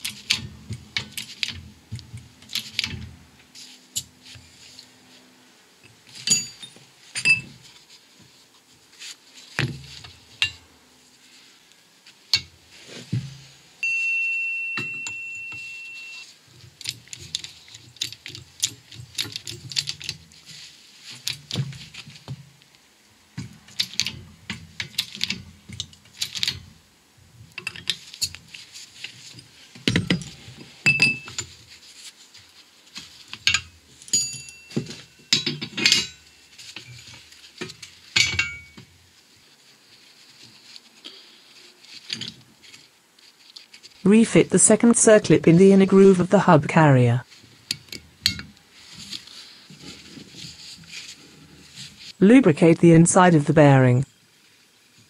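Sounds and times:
metal clinks and knocks: 5.9 - 7.6, 13.9 - 20.2, 29.2 - 31.8, 33.3 - 38.9
ringing metallic ping: 13.8 - 16.2.

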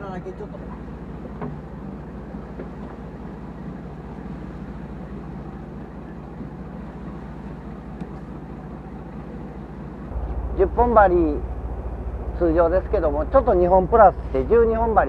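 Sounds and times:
boat engine droning: 0.0 - 15.0
water rushing past hull: 0.0 - 15.0.

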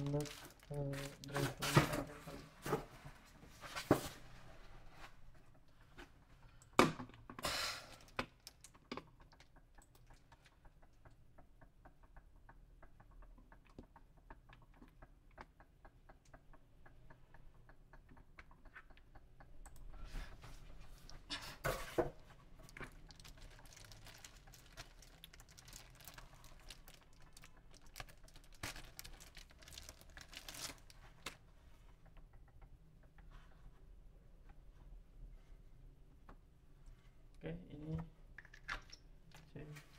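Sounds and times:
plastic packaging crinkling: 0.0 - 1.8, 22.7 - 31.4
soft rapid ticking: 8.6 - 21.2, 31.8 - 33.5.

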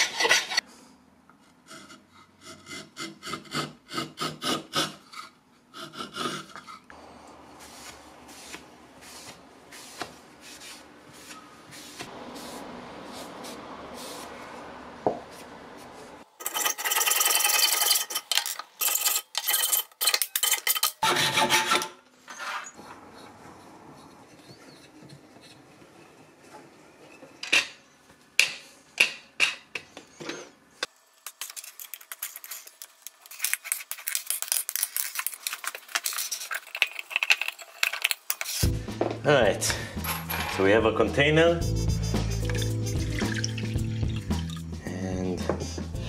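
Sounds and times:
hacksaw cutting metal rod: 1.7 - 5.1, 16.4 - 22.0
hand tool rubbing on wood: 41.6 - 43.2.

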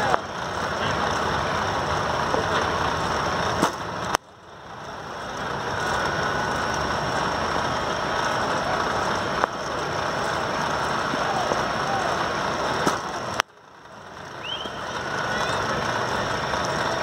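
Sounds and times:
rushing outdoor background noise: 0.0 - 17.0.

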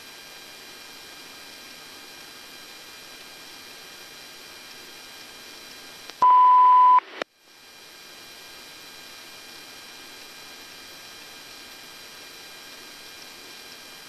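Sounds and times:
radio channel hiss: 0.0 - 14.0
high beep: 6.2 - 7.1.

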